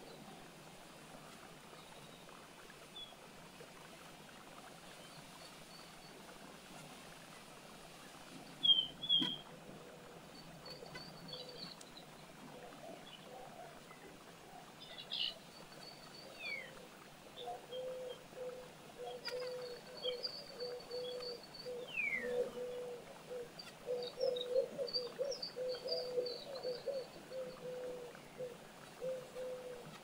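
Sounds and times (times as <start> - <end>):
bird calls and trills: 8.4 - 30.0.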